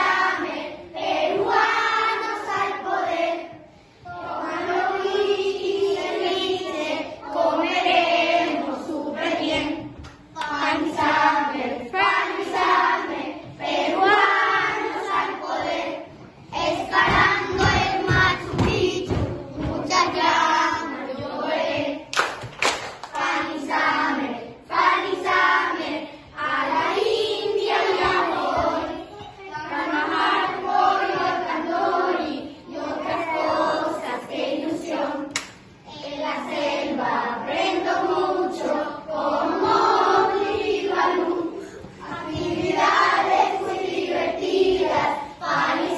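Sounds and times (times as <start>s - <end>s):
children singing together: 0.0s - 22.1s, 23.1s - 45.9s
hands clapping: 10.0s - 10.6s, 22.1s - 23.4s, 35.3s - 35.6s.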